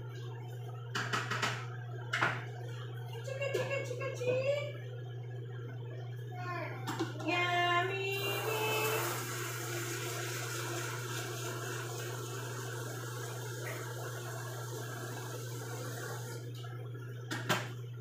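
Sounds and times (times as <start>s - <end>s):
tap running water into sink: 0.9s - 2.5s, 8.8s - 16.6s, 17.3s - 17.7s.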